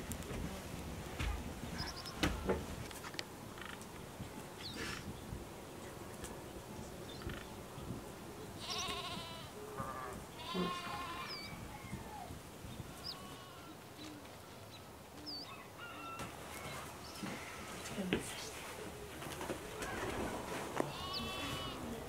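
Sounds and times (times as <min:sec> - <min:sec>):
farm animal bleating: 0:08.6 - 0:11.6, 0:12.8 - 0:13.8, 0:20.9 - 0:22.0.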